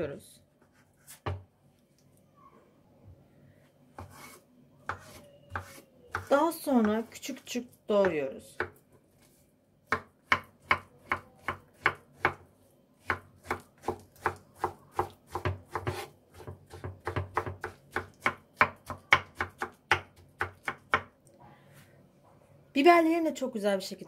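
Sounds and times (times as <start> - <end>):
knife chopping on wooden board: 4.0 - 7.1, 9.9 - 12.4, 13.0 - 21.1.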